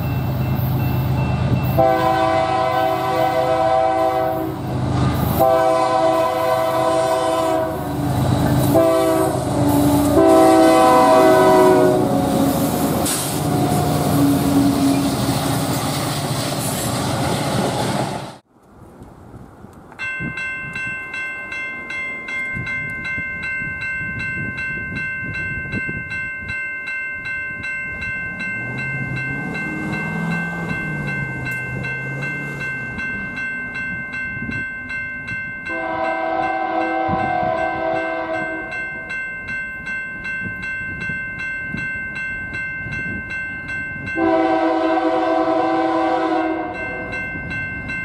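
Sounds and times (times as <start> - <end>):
crossing bell ringing: 0.0 - 15.8, 19.9 - 48.0
locomotive air horn blasts: 1.8 - 15.1, 35.7 - 38.7, 44.2 - 47.1.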